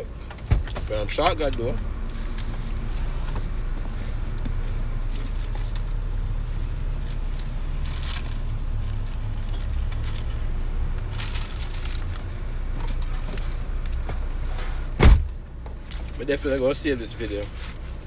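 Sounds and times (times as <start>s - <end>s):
car cabin low rumble: 0.0s - 18.0s
paper wrapper rustling: 7.1s - 12.4s.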